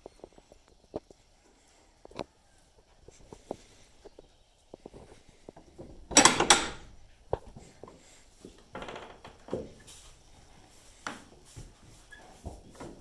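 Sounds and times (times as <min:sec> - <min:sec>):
knocks and rustles: 0:03.1 - 0:13.0.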